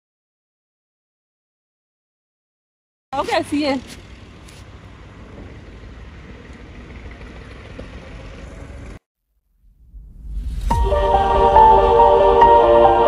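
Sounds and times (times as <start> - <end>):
low rumble: 9.5 - 13.0.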